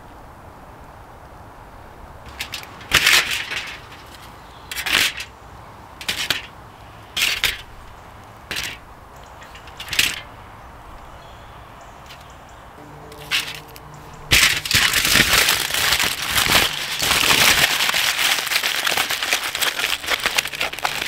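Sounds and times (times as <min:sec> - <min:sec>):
aluminium foil crinkling: 0:02.3 - 0:05.3, 0:13.1 - 0:21.0.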